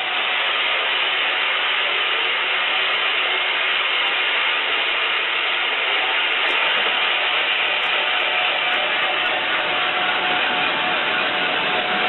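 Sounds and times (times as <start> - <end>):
band saw cutting wood: 2.8 - 12.0.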